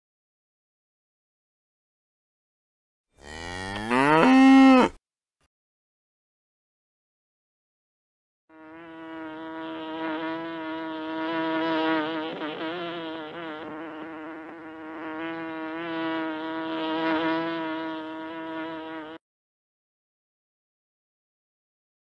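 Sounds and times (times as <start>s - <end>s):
honeybees buzzing: 8.6s - 19.2s.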